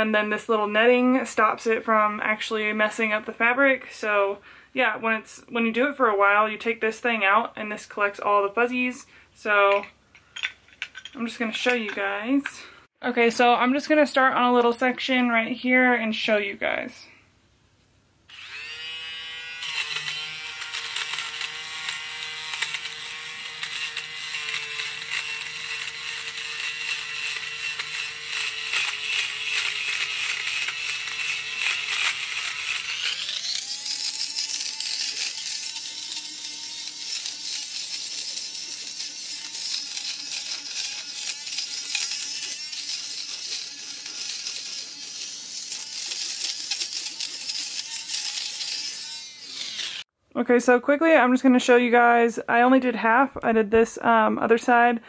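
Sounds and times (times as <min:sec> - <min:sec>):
fabric shaver whining: 0:18.3 - 0:50.1.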